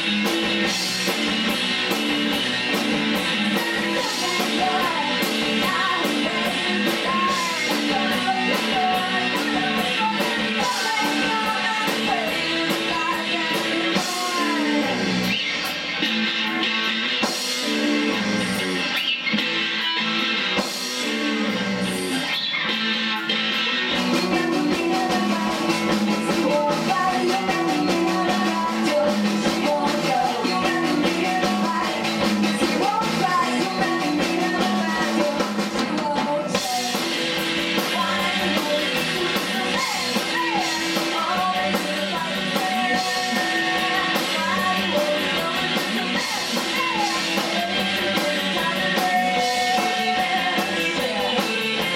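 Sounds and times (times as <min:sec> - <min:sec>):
drum kit: 0:00.0 - 0:51.9
rock band playing live: 0:00.0 - 0:51.9
woman singing: 0:02.7 - 0:15.4, 0:23.8 - 0:51.9.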